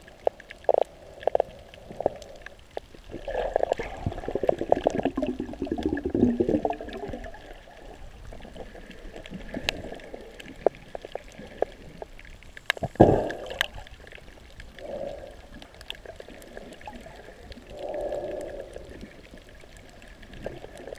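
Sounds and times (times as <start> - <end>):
muffled underwater sloshing and gurgling: 0.0 - 20.9.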